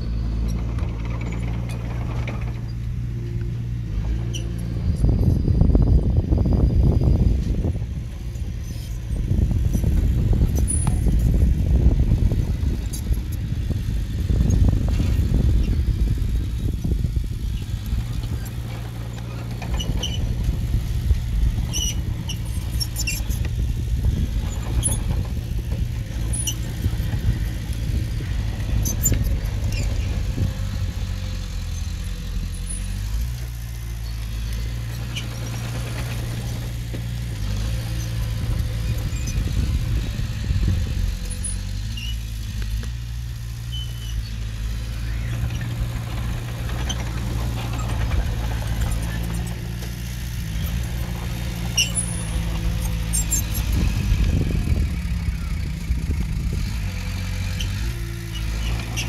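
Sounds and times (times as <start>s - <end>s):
bulldozer diesel engine running: 0.0s - 59.0s
high-pitched squeaks: 51.7s - 53.8s.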